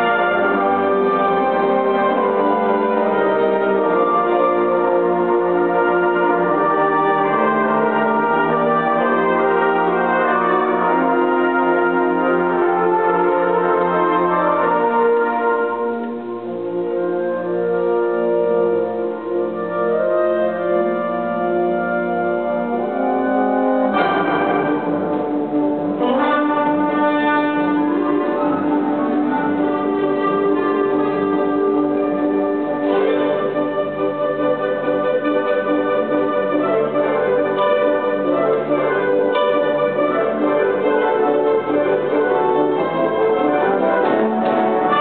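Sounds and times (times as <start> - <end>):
concert band playing chords: 21.7 - 34.3.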